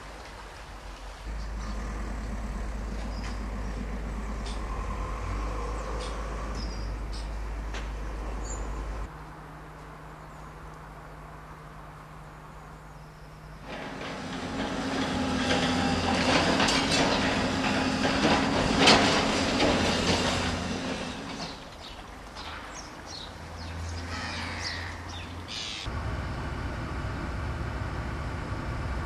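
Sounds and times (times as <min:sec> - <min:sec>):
excavator diesel engine: 0:01.2 - 0:09.1, 0:13.6 - 0:22.2, 0:24.8 - 0:29.0
high metallic squeals: 0:13.6 - 0:21.6
grinding and scraping of rubble: 0:13.6 - 0:22.4.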